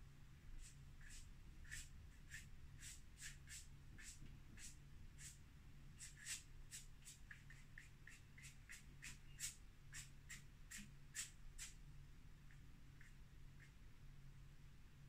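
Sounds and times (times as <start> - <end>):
brush scratching on canvas: 0.6 - 5.4, 6.0 - 11.8.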